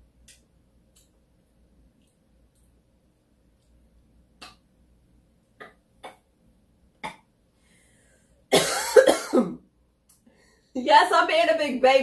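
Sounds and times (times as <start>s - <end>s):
woman coughing: 8.5s - 9.6s.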